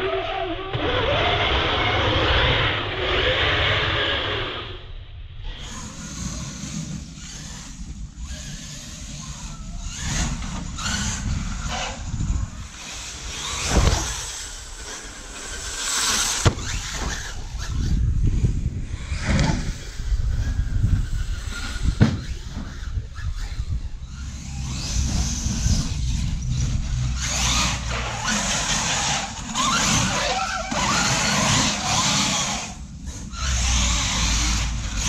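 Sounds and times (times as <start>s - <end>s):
wind rumble on microphone: 0.0s - 35.0s
toy truck motor whine: 5.5s - 35.0s.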